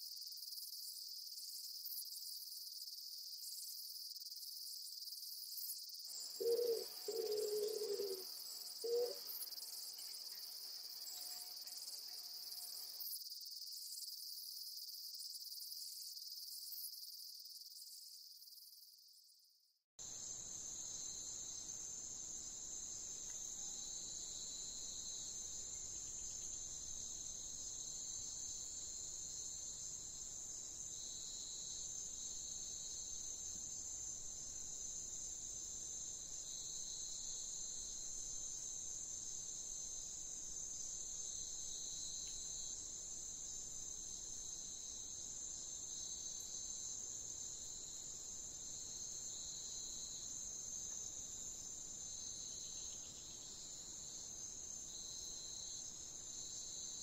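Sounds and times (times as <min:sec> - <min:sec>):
insects chirping: 0:00.0 - 0:19.4, 0:20.0 - 0:57.0
lower insect trill: 0:00.0 - 0:57.0.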